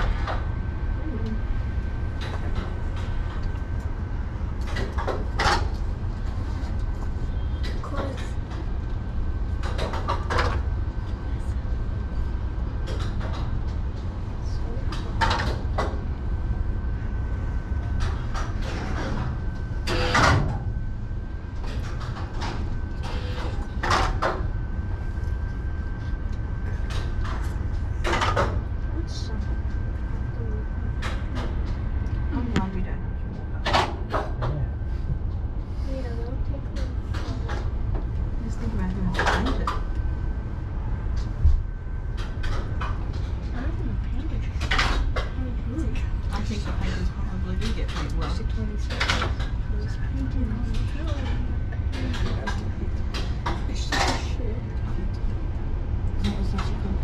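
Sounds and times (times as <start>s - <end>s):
faint steady whine: 0.0s - 57.0s
lift cabin rumble: 0.0s - 57.0s.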